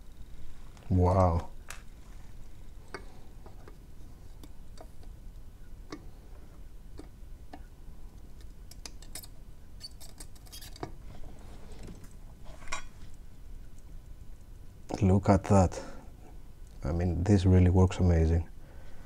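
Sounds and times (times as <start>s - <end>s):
steady low hum: 0.0s - 19.0s
soldering clicks and crackles: 6.9s - 11.0s.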